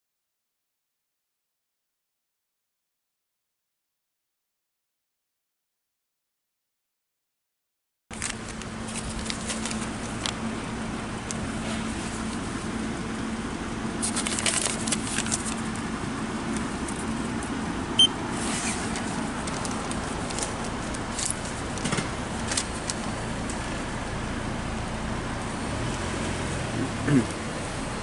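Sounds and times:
receipt paper rustling: 8.1s - 10.4s, 14.0s - 17.5s, 18.3s - 23.7s
car engine idling: 8.1s - 28.0s.

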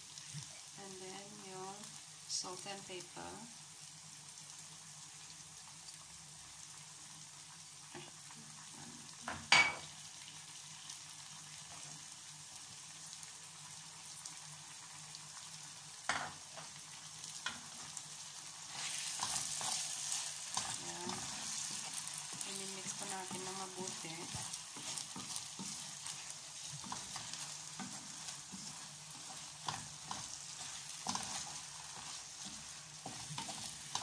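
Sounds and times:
oil sizzling in a frying pan: 0.0s - 34.0s
spatula stirring: 17.3s - 34.0s.

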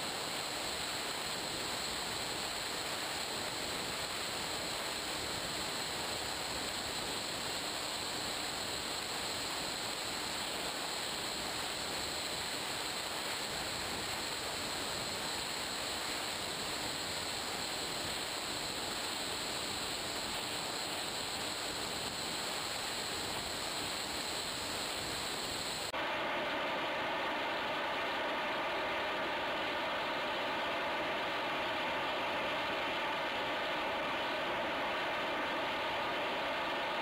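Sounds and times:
high whine: 12.5s - 37.0s.

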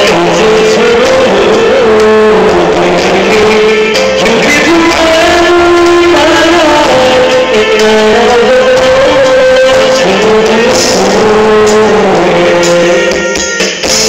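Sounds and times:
guitar accompaniment: 0.0s - 14.0s
man singing into microphone: 0.0s - 14.0s.

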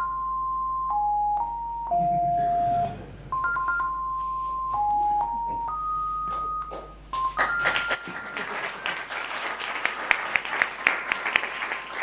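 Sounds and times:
sine-wave ringtone melody: 0.0s - 9.1s.

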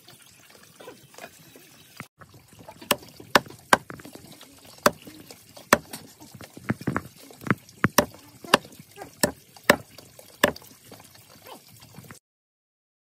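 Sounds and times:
knife chopping on wooden block: 2.9s - 4.1s, 4.8s - 5.0s, 7.9s - 10.6s.

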